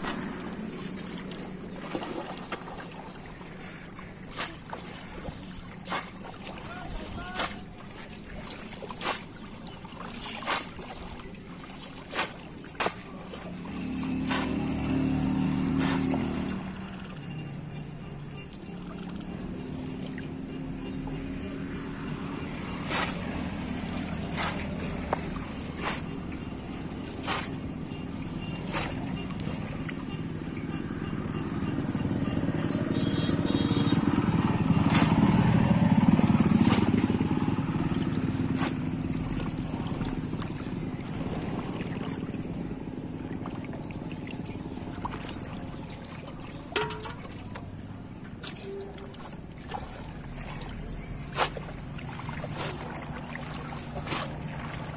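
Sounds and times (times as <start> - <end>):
passing vehicle engine: 0.0 - 2.4, 13.4 - 17.5, 18.7 - 46.1
fish trap splashing into water: 0.0 - 17.4, 22.3 - 30.1, 33.5 - 54.9
low motor hum: 13.2 - 54.9.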